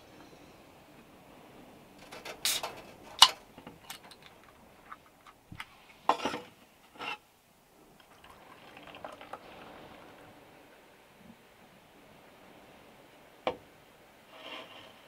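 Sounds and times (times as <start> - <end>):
drink pouring into metal cup: 8.0 - 10.0.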